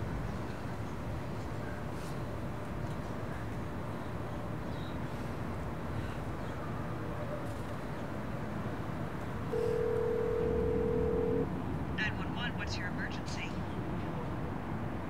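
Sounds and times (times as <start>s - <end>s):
low city hum: 0.0s - 15.0s
phone ringback tone: 9.5s - 11.4s.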